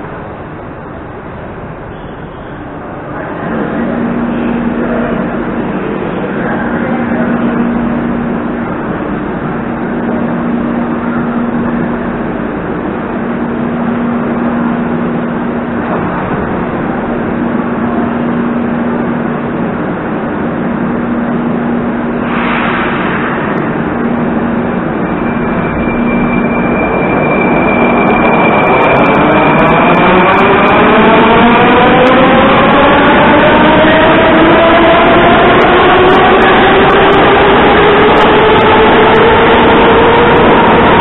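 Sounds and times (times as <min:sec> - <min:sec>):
high steady train whine: 0:00.0 - 0:41.0
train equipment low hum: 0:00.0 - 0:41.0
constant rumble: 0:02.6 - 0:28.2
short hiss: 0:22.3 - 0:23.4.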